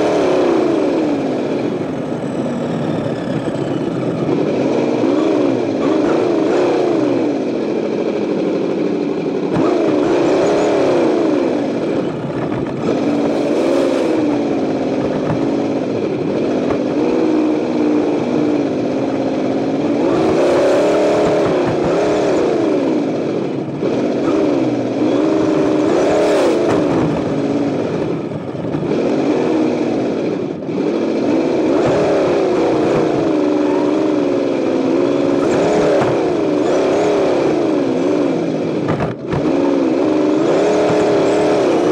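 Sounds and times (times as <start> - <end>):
toy truck rolling on asphalt: 0.0 - 6.0
simulated engine sound from speaker: 0.0 - 41.9.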